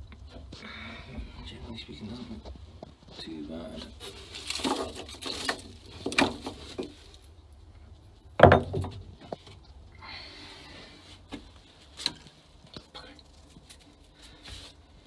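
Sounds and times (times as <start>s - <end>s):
knocking and scraping in wooden hull: 4.0s - 7.2s, 8.4s - 9.6s.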